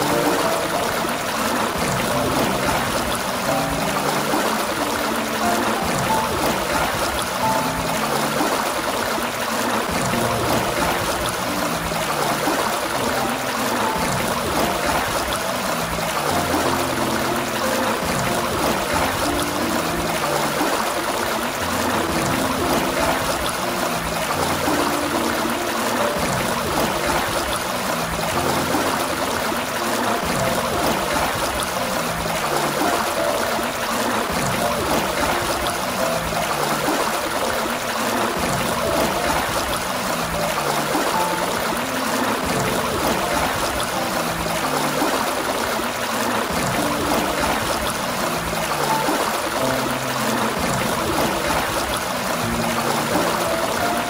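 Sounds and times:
water gushing from a fountain: 0.0 - 54.0.

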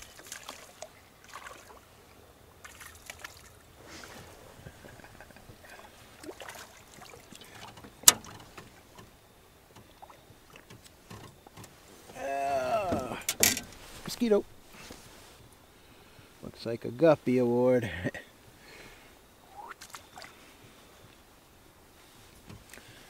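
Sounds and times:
faint water noise: 0.0 - 23.0
light knocks and clicks: 7.6 - 11.8.

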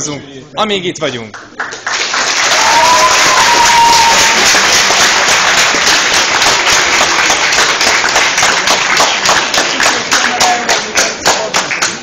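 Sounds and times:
crowd applauding: 1.4 - 12.0.

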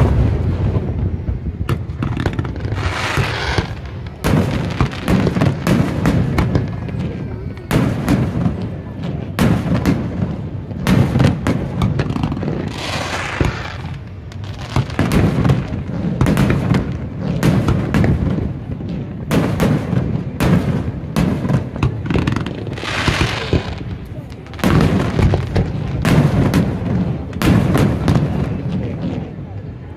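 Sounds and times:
continuous low rumble: 0.0 - 29.9
hissing crackle: 1.8 - 8.8.

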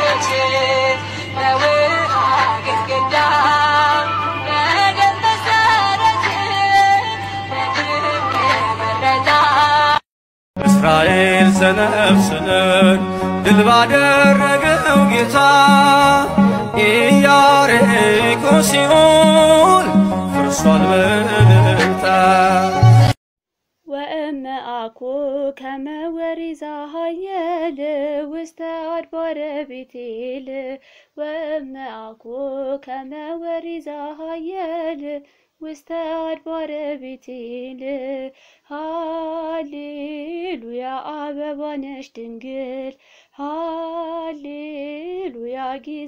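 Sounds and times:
woman singing a hymn solo: 0.0 - 10.0, 23.9 - 46.0.

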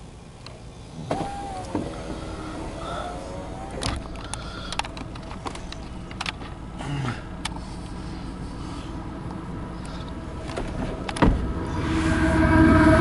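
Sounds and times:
low engine rumble: 0.0 - 13.0
sharp clicks and knocks: 3.7 - 6.6.

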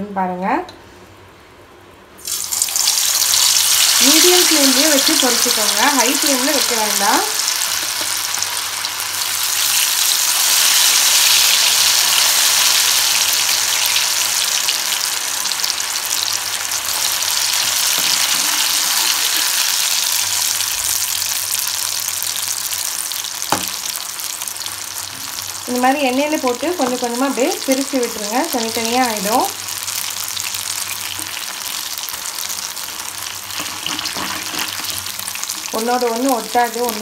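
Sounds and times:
food sizzling in hot oil: 2.2 - 37.0
metal spoon knocking pan: 23.5 - 23.8.

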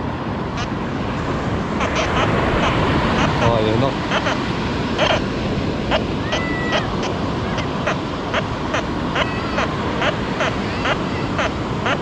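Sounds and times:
surf: 0.0 - 12.0
wind: 0.0 - 12.0
bird calling harshly: 4.1 - 4.4, 5.0 - 5.2.

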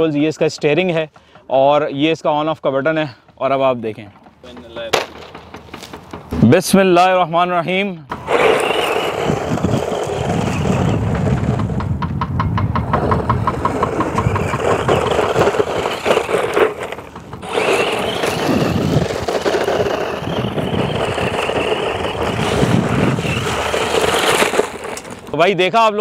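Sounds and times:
tyres scrabbling on gravel: 3.7 - 6.5, 8.1 - 11.9, 12.8 - 25.8
rc car motor running: 8.1 - 11.8, 12.9 - 25.4
regular ticks: 8.3 - 25.4.

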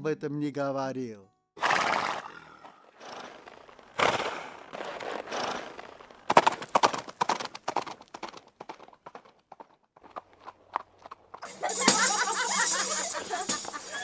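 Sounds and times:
horse blowing breathily: 1.6 - 6.8
sharp hoofbeats: 1.6 - 14.0.

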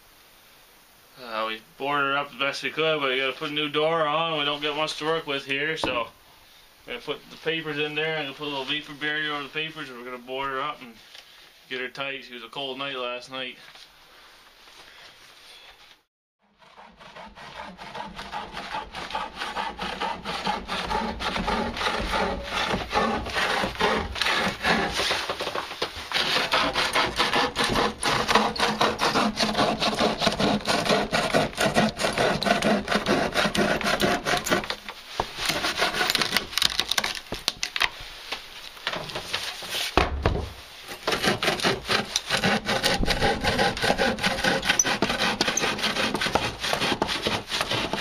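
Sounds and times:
bow saw cutting wood: 16.4 - 37.0, 40.9 - 48.0.

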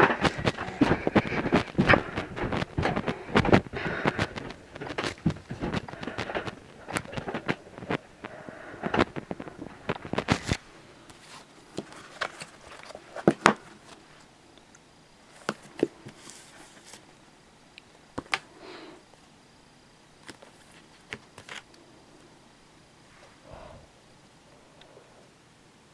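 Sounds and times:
paper rustling: 0.0 - 14.2, 15.3 - 17.1, 20.2 - 21.7.

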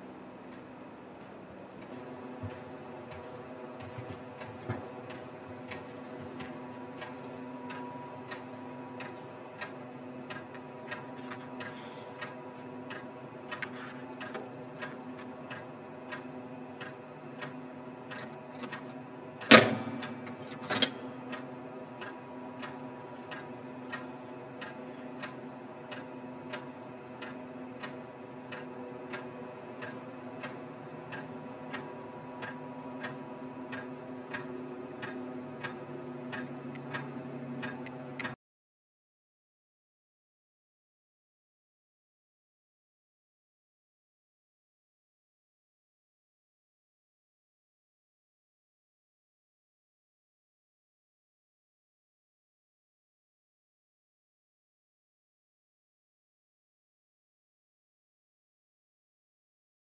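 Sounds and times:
mechanical clock ticking: 7.0 - 38.4
time clock lever clunk: 18.2 - 21.1.

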